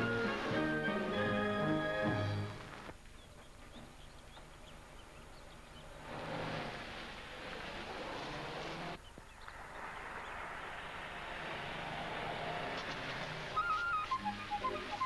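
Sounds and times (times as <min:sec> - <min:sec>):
old car engine running: 0:04.0 - 0:09.0, 0:10.6 - 0:15.0
small wind instrument trilling melody: 0:13.5 - 0:15.0.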